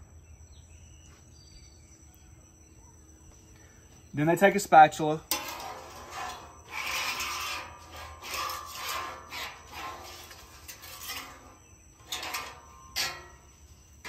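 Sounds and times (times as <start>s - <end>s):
spatula scraping a griddle: 5.2s - 14.0s.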